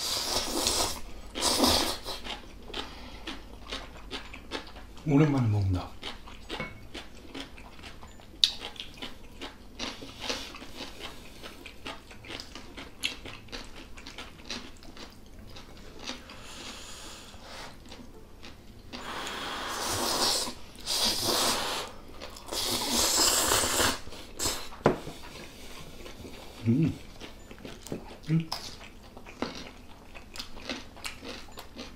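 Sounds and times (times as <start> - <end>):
chewing: 0.2 - 31.9
slurping noodles: 19.0 - 21.9, 22.5 - 24.7.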